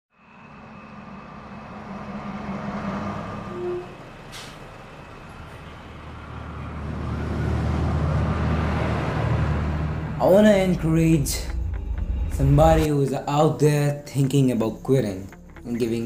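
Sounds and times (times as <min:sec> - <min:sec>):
bus engine humming: 0:00.2 - 0:12.9
air brake hiss: 0:04.3 - 0:04.7.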